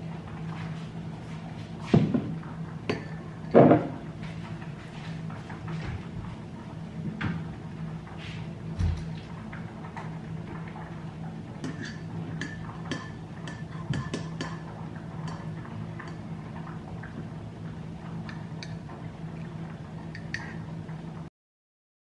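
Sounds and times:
low steady hum: 0.0s - 21.3s
teaspoon clinking in a ceramic mug: 11.7s - 14.6s.

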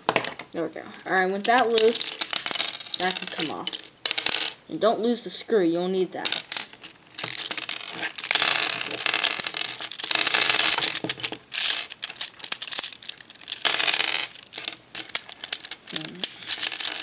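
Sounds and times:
plastic puzzle pieces clicking: 1.4s - 4.6s, 6.3s - 17.0s.

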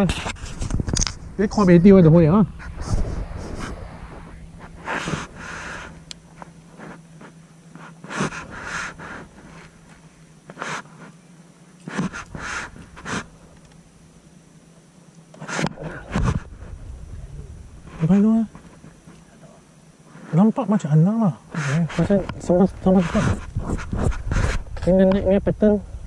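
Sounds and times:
steady low hum: 0.0s - 26.0s
person breathing: 2.6s - 6.0s, 11.9s - 13.3s.

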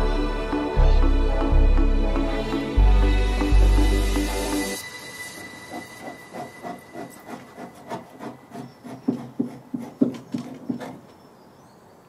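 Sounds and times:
knife blade scraping wood: 5.2s - 11.2s.

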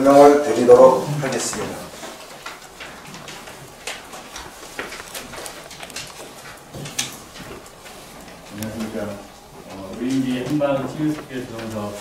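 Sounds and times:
desk handling clicks and knocks: 1.9s - 8.9s.

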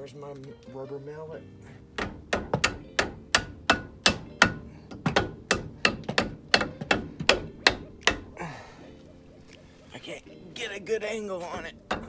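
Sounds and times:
rubber mallet knocking on metal: 2.0s - 8.4s, 11.6s - 12.0s.

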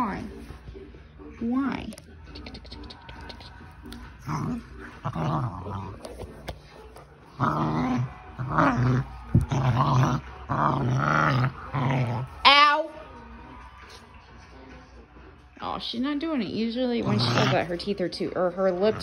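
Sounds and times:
dog growling: 2.4s - 6.2s, 7.3s - 12.4s, 17.0s - 18.0s.

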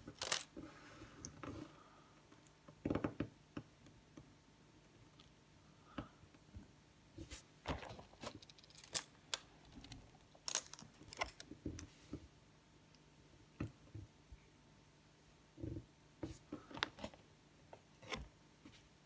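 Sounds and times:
plastic bricks clicking: 8.4s - 11.5s.

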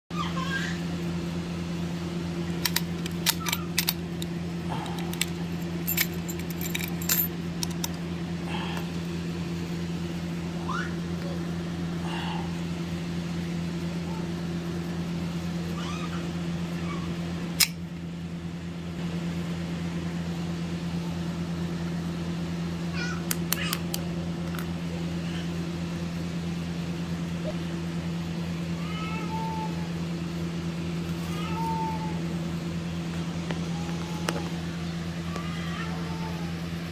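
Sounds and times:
steady low hum: 0.2s - 36.9s
padlock and keys clicking: 2.6s - 4.3s, 4.9s - 8.0s.

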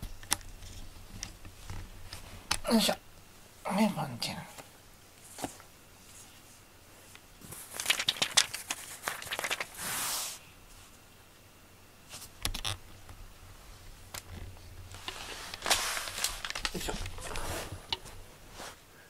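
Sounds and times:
plastic toy crinkling and rustling: 7.1s - 9.9s, 14.1s - 18.2s.

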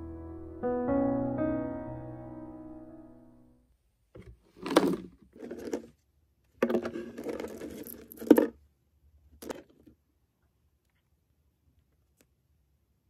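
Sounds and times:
piano music: 0.0s - 3.6s.

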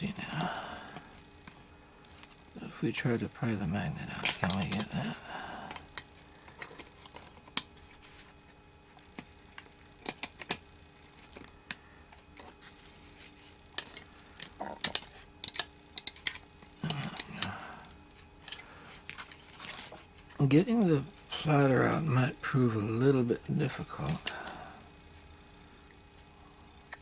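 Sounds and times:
metal tools clicking and scraping: 4.2s - 5.0s, 13.7s - 17.3s, 18.4s - 19.8s.

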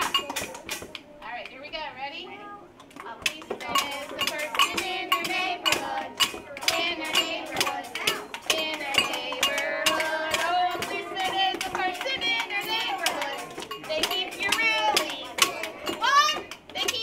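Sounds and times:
woman singing: 3.1s - 17.0s
children singing: 3.5s - 16.5s.

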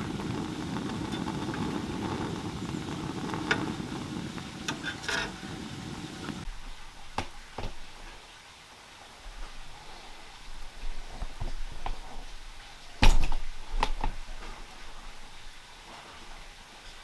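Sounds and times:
gas burner rushing: 0.0s - 6.5s
metal tongs clicking on charcoal: 4.6s - 5.4s.

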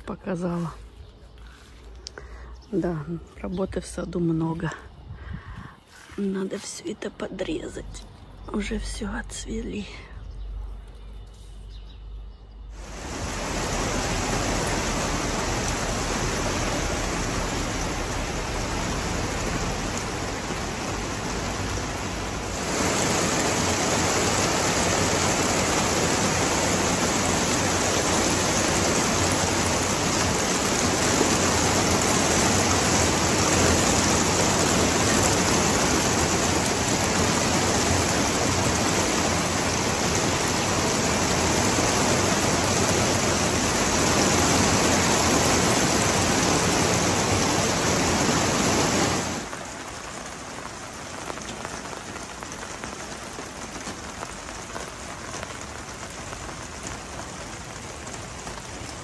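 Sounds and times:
heavy rain falling: 12.7s - 59.0s.

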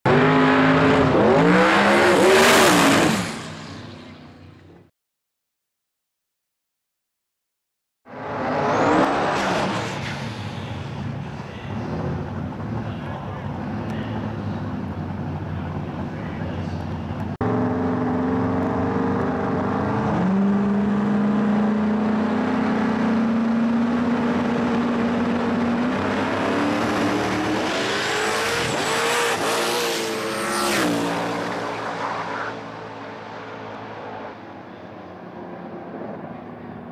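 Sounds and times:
drag racing engine revving: 0.1s - 3.8s, 11.7s - 34.4s.

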